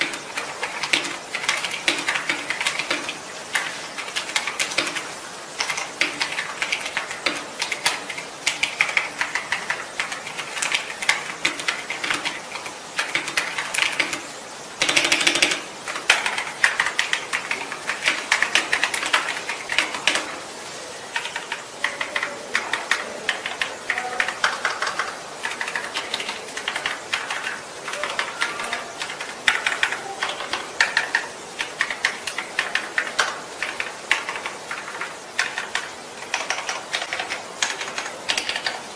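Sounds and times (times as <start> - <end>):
mechanical keyboard typing: 0.0 - 38.9.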